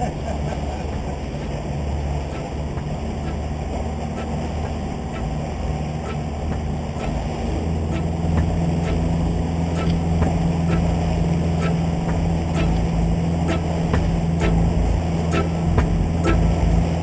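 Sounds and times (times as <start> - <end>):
outboard motor droning: 0.0 - 17.0
rush of boat wake: 0.0 - 17.0
faint ticks: 9.8 - 10.9.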